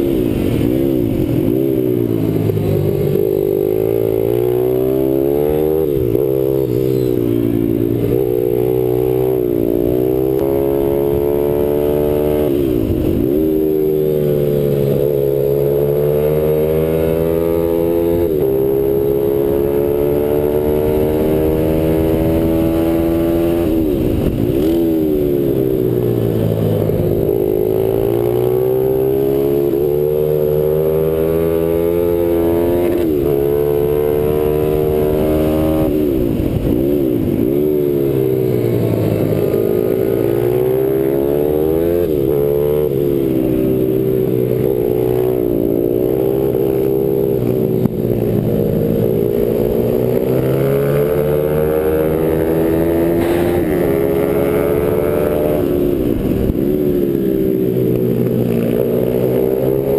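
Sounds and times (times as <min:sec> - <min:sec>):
motorbike engine revving: 0:00.0 - 0:59.9.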